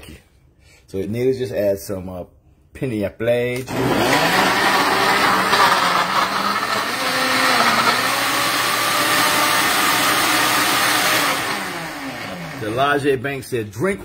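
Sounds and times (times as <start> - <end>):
countertop blender running: 3.6 - 13.0.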